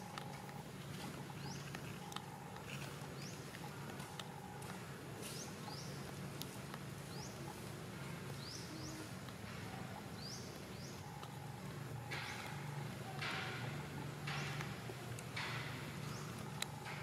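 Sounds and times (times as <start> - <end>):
soft rustle: 0.0 - 13.0
bird chirping: 0.0 - 17.0
low steady hum: 0.0 - 17.0.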